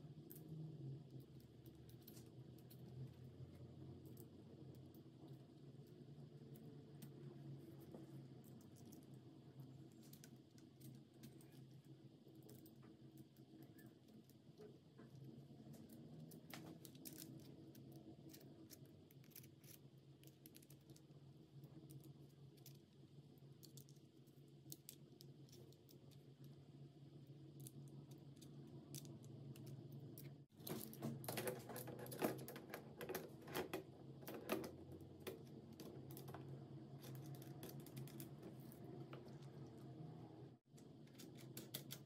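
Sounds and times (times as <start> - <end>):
low steady hum: 0.0 - 42.0.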